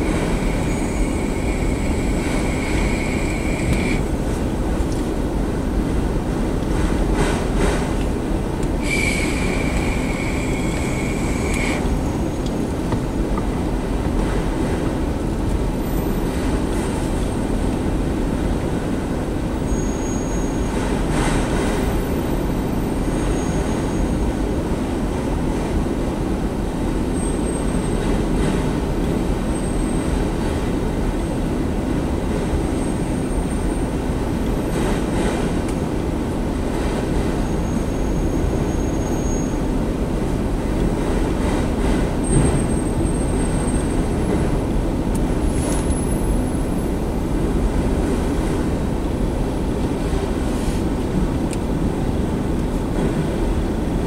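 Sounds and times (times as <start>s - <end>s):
high wheel squeal: 0.0s - 4.1s, 8.8s - 12.4s, 19.7s - 20.8s, 22.7s - 24.3s, 37.4s - 39.7s
steel wheels rolling on rail: 0.0s - 54.0s.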